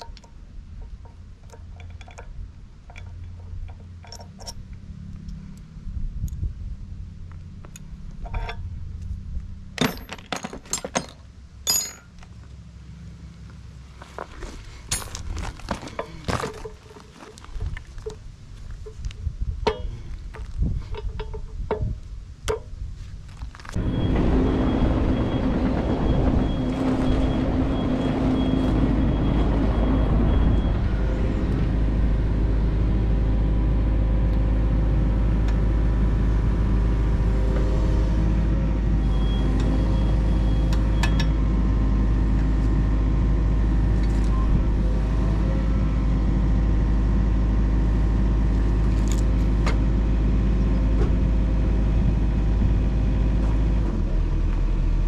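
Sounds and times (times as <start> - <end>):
diesel engine starting and running: 22.6 - 55.0
high-pitched whine: 23.8 - 38.2.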